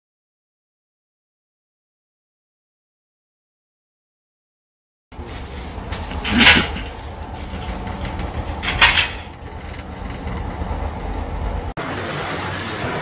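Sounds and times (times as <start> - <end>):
diesel engines rumbling: 5.1 - 13.0
loud noisy burst: 11.8 - 13.0.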